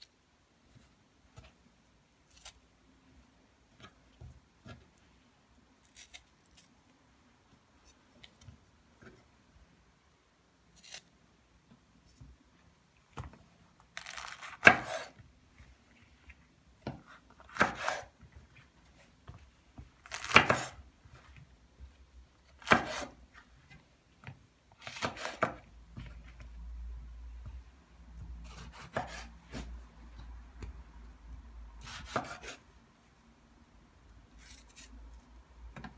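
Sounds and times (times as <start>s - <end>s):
knife slicing vegetables: 14.0s - 15.2s, 16.9s - 18.2s, 20.0s - 20.8s, 22.5s - 23.2s, 24.8s - 25.6s, 28.4s - 29.7s, 31.8s - 32.6s, 34.4s - 34.9s.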